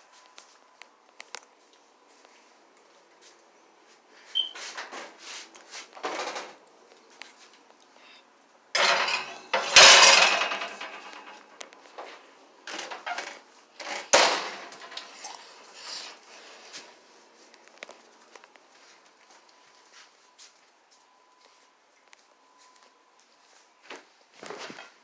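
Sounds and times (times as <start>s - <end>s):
metal baking tray rattling: 8.8s - 11.4s, 12.7s - 15.1s
metal scraping clatter: 8.8s - 11.4s.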